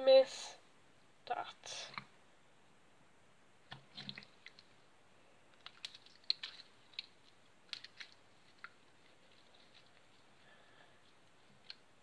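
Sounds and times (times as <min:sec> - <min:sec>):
slime squelching: 0:03.6 - 0:04.9, 0:05.5 - 0:12.0.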